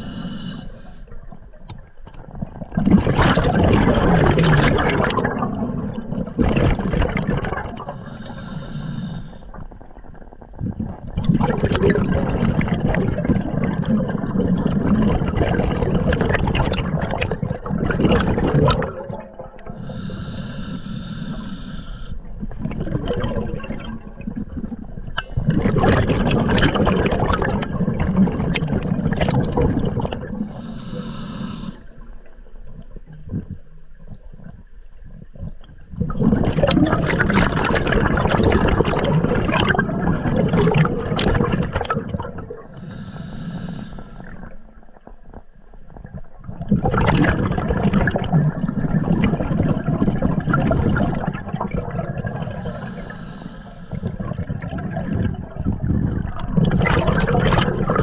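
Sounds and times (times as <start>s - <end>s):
regulator hissing inhales: 0.0s - 1.1s, 7.9s - 9.5s, 19.8s - 22.2s, 30.4s - 32.0s, 42.7s - 44.4s, 52.4s - 54.2s
bubble exhales underwater: 2.2s - 8.0s, 9.7s - 19.8s, 22.3s - 30.6s, 35.3s - 42.8s, 45.9s - 53.1s, 54.0s - 58.0s.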